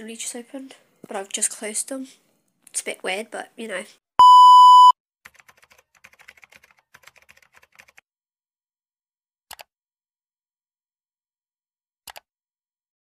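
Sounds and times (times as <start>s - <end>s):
keyboard typing clicks: 5.3s - 8.0s.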